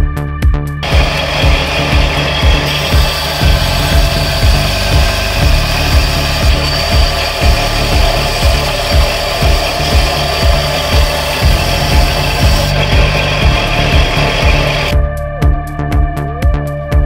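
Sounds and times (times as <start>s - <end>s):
belt sander grinding metal: 0.8s - 14.9s.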